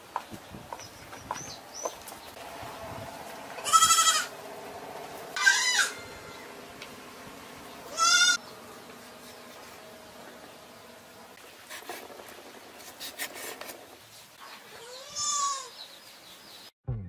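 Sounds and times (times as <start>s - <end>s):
goat bleating: 3.6s - 4.3s, 5.4s - 6.1s, 7.9s - 8.4s, 14.7s - 15.7s.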